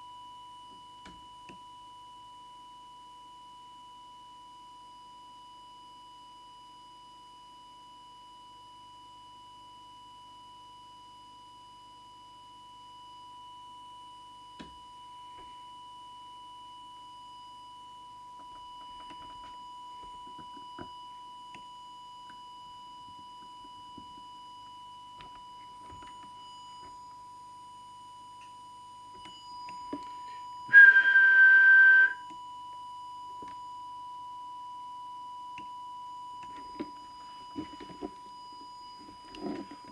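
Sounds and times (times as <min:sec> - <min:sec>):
loud steady whistle: 0:00.0 - 0:39.9
steady test tone: 0:28.0 - 0:32.3.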